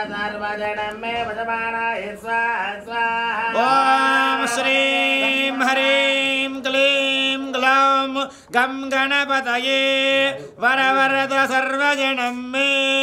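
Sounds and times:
man chanting: 0:00.0 - 0:13.0.

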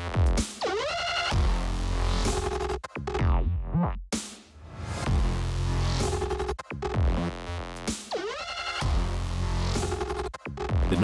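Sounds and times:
electronic dance music: 0:07.9 - 0:11.0.

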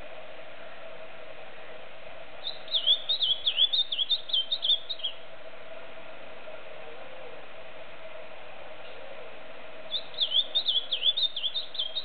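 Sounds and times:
bird singing warbled whistles: 0:02.4 - 0:05.2, 0:09.9 - 0:12.0.

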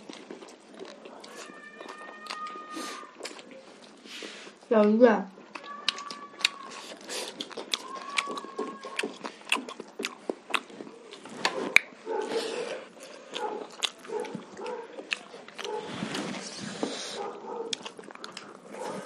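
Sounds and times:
lip-smacking and chewing: 0:00.0 - 0:19.0.

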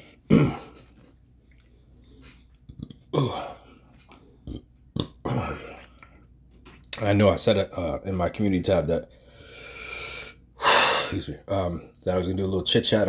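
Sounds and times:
man burping: 0:00.3 - 0:00.9, 0:02.7 - 0:03.6, 0:04.4 - 0:05.9.

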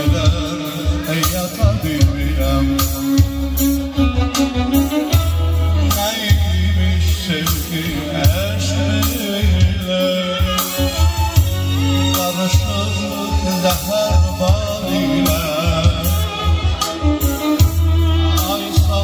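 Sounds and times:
steady beat with heavy bass: 0:00.0 - 0:06.9, 0:07.5 - 0:19.0
electric violin over keyboard: 0:00.0 - 0:19.0.

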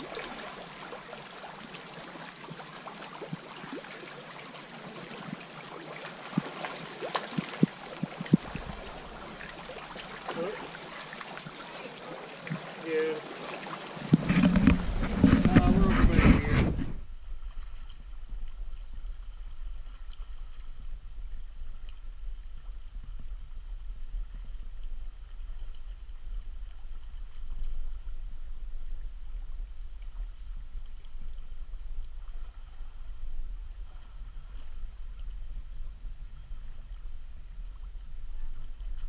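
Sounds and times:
river water rushing: 0:00.0 - 0:16.0
wind rumble on microphone: 0:07.6 - 0:09.5, 0:14.1 - 0:39.0.

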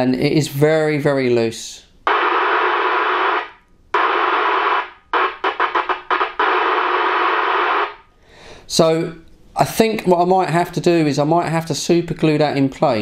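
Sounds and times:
radio speaker hiss: 0:02.1 - 0:08.0.

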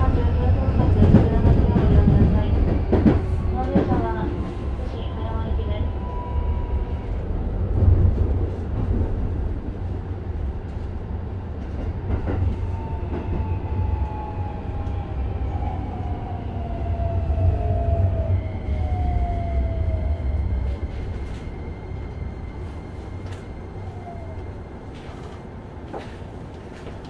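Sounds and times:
wheels rumbling on rail: 0:00.0 - 0:27.0.

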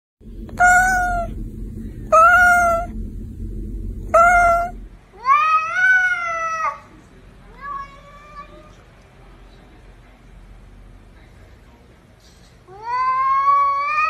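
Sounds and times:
low rumble: 0:00.2 - 0:05.1
cat meowing: 0:00.6 - 0:01.4, 0:02.1 - 0:02.9, 0:04.1 - 0:06.8.

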